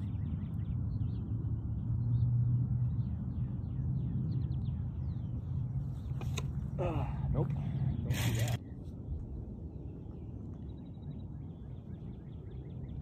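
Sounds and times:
birds chirping: 0.0s - 13.0s
low steady rumble: 0.0s - 13.0s.

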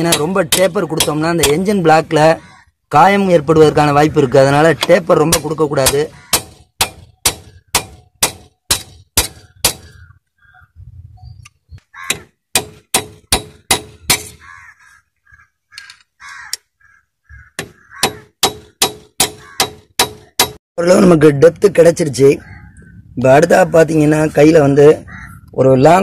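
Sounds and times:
hammer on steel chisel: 12.1s - 14.4s, 17.6s - 20.6s.

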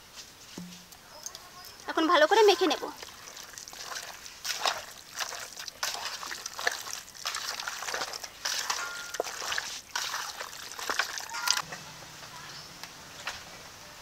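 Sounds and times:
wet squelching and sloshing: 1.3s - 11.6s.

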